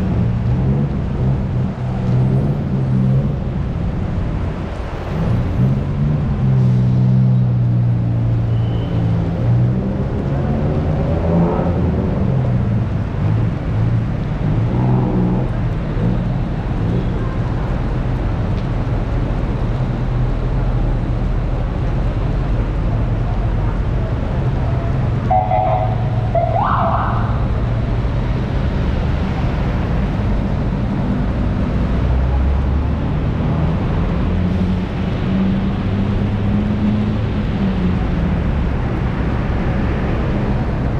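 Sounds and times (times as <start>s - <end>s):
traffic engines humming: 0.0s - 40.9s.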